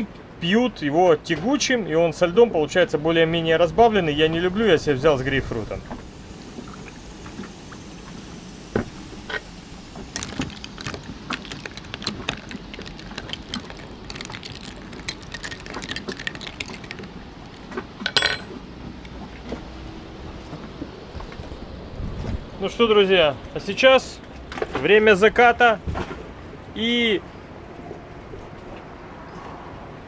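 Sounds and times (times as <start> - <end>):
spoon clinking ice in glass: 10.2 - 17.2, 18.0 - 18.5.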